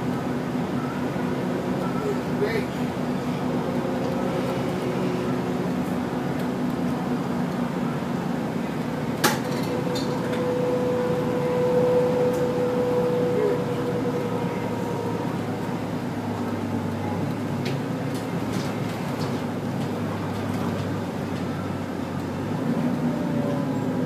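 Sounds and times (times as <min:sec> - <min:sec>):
steady whine: 0:00.0 - 0:18.4
bus engine and road drone: 0:00.0 - 0:24.0.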